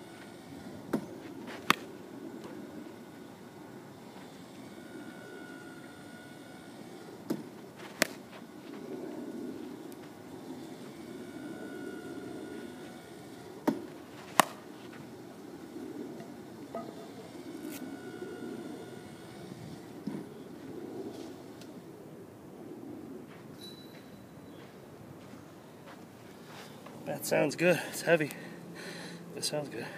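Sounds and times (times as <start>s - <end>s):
wooden bat cracking on ball: 0.9s - 2.6s, 7.2s - 8.4s, 13.6s - 14.7s.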